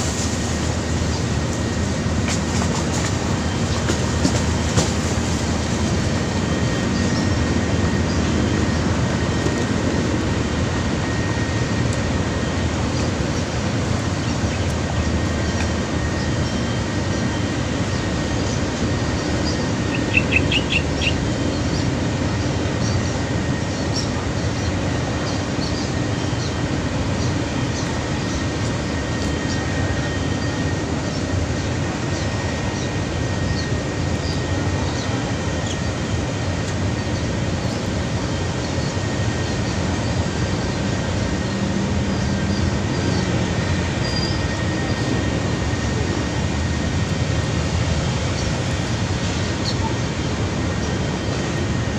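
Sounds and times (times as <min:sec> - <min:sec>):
low rumbling river noise: 0:00.0 - 0:51.9
high bird chirps: 0:19.5 - 0:21.2.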